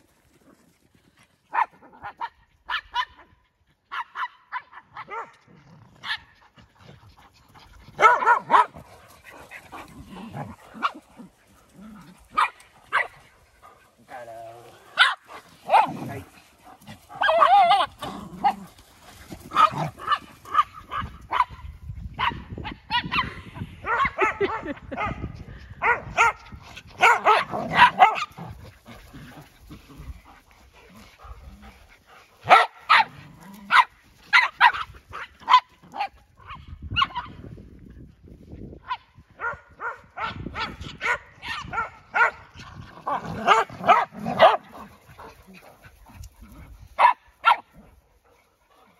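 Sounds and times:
dogs barking and yipping: 1.5 - 37.6, 38.8 - 48.9.

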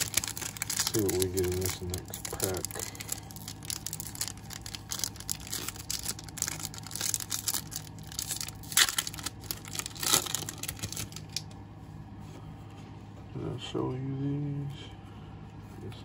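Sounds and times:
foil wrapper tearing and crinkling: 0.0 - 11.5
low steady hum: 0.0 - 16.0.

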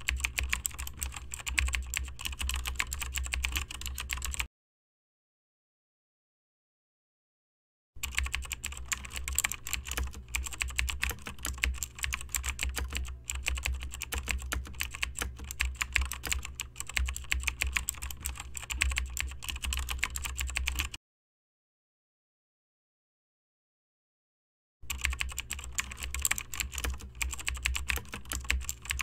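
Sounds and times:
fast keyboard typing: 0.0 - 4.5, 8.0 - 21.0, 24.9 - 29.0.

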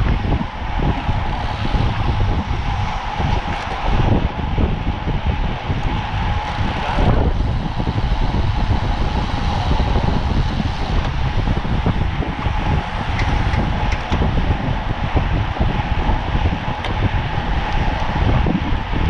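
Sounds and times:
wind rushing over microphone: 0.0 - 19.0.

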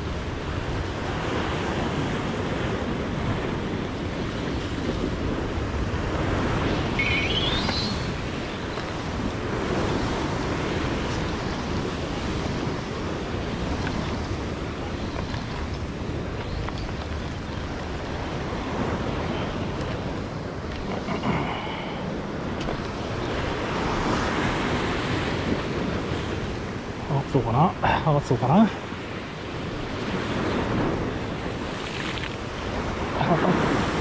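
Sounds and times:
ocean waves on rocky shore: 0.0 - 34.0
wind buffeting microphone: 0.0 - 34.0
high squeak: 7.0 - 8.1.

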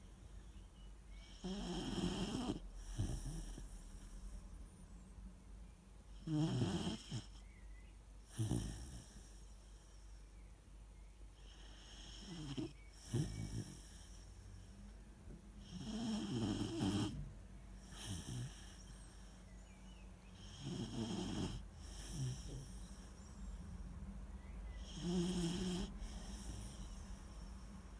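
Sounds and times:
puppy snoring: 1.1 - 4.3, 6.2 - 7.6, 8.2 - 10.1, 11.4 - 14.7, 15.6 - 19.7, 20.3 - 23.6, 24.7 - 27.8.

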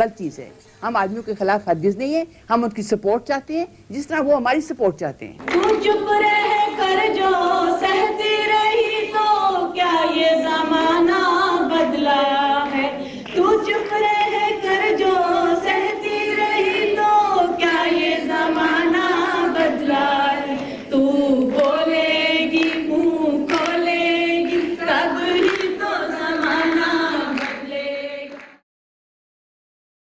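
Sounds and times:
women singing together: 5.4 - 28.6.

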